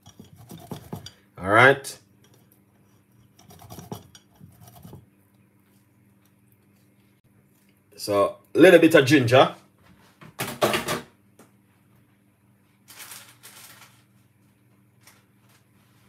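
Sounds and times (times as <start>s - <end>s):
ginger rasping on metal grater: 0.0s - 1.1s, 3.3s - 5.0s.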